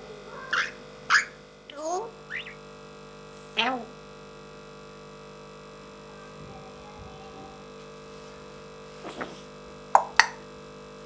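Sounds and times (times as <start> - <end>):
steady electrical hum: 0.0 - 11.0
parrot vocalizing: 0.3 - 2.6, 6.1 - 7.6.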